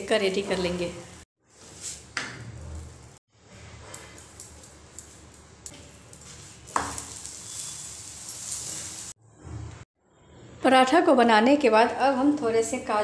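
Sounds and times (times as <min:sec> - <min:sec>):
flatbread sizzling on hot iron: 0:05.8 - 0:09.2.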